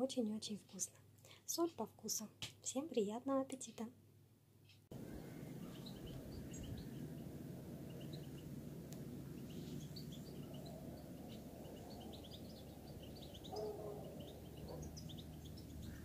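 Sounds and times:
small birds chirping: 0:04.6 - 0:16.0
low outdoor rumble: 0:04.9 - 0:16.0.

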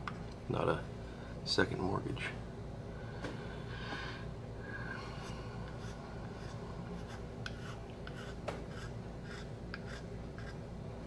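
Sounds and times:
hand file scraping wood: 0:05.8 - 0:10.6.

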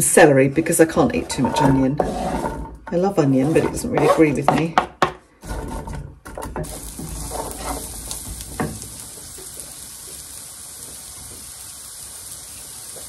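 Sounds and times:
wooden spoon scraping a pan: 0:00.0 - 0:08.8
vegetables sizzling in oil: 0:06.6 - 0:13.0.

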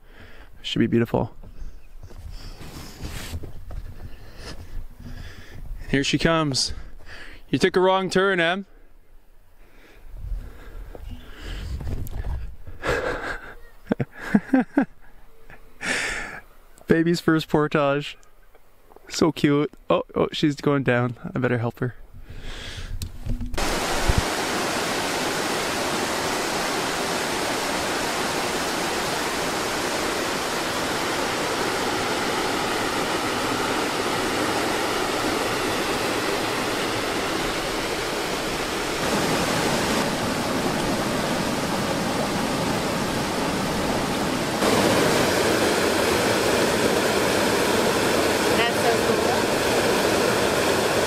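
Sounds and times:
river rapids rushing: 0:23.6 - 0:51.0.

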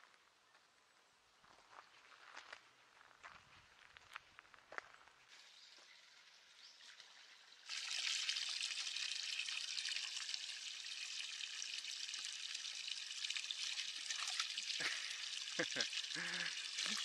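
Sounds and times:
water pouring into wooden trough: 0:06.2 - 0:17.0.

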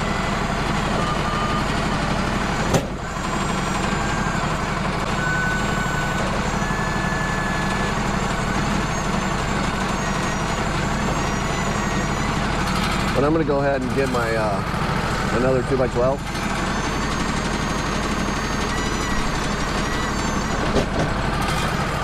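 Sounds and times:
sawmill engine running: 0:00.0 - 0:22.0.

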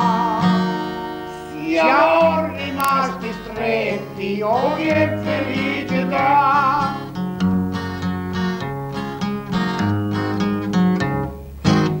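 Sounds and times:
man singing with vibrato: 0:00.0 - 0:07.2
acoustic guitar strumming chords: 0:00.0 - 0:12.0.

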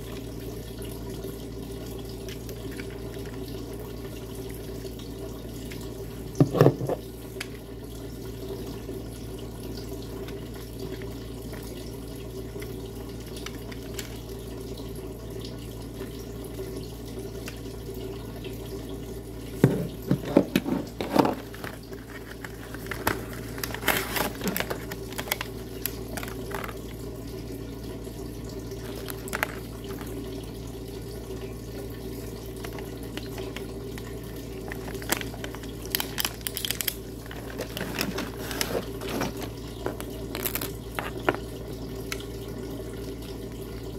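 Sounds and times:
plastic clicks and rattles: 0:19.6 - 0:26.8, 0:28.8 - 0:30.1, 0:34.7 - 0:41.4.

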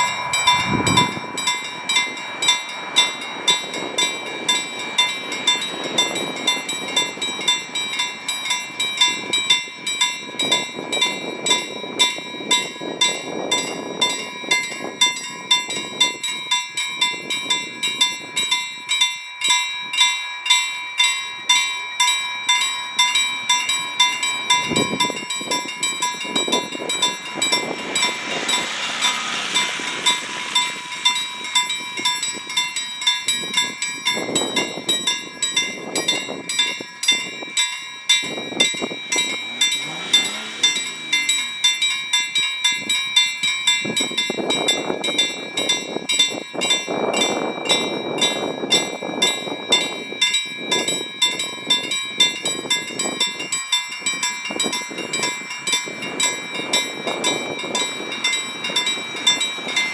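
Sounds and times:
passing vehicle rushing: 0:00.0 - 0:03.1, 0:27.1 - 0:31.8, 0:39.1 - 0:41.7
level crossing warning bell: 0:00.0 - 0:59.9.

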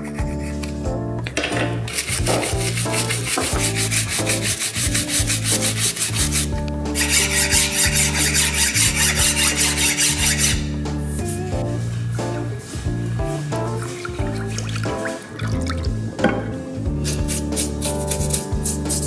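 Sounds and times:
background music: 0:00.0 - 0:19.0
scouring pad scrubbing handle: 0:01.9 - 0:10.6.

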